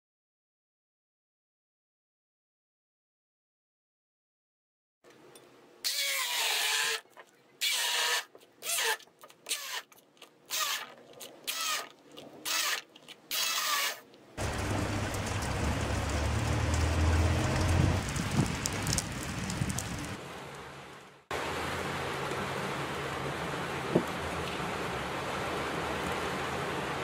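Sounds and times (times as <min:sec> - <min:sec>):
deep rumble: 0:14.4 - 0:20.2
rain rushing: 0:14.4 - 0:27.0.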